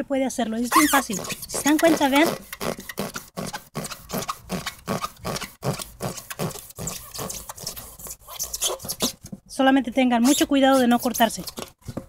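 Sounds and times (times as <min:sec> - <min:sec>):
knife sawing through rubber tire: 0:00.7 - 0:09.2, 0:10.3 - 0:11.4.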